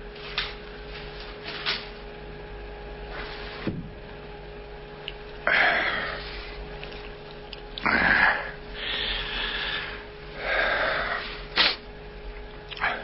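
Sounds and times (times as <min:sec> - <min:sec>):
scraping rustle: 0:00.0 - 0:02.2, 0:03.0 - 0:03.8
faint steady recording hum: 0:00.0 - 0:13.0.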